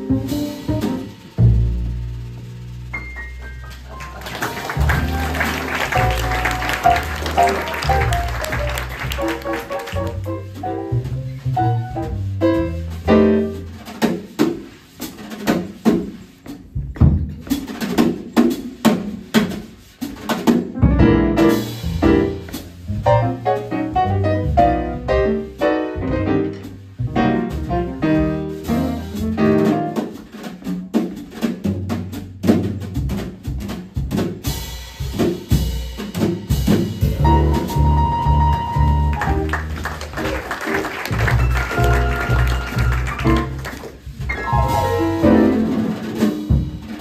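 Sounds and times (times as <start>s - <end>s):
walking double bass line: 0.0s - 14.1s, 20.8s - 30.7s, 31.3s - 47.0s
piano: 0.0s - 47.0s
steady drumming: 0.0s - 47.0s.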